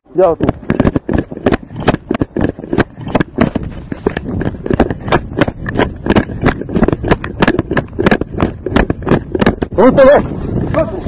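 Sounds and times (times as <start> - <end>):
camera rubbing on clothing: 0.2 - 10.2
footsteps thumping: 0.3 - 9.8.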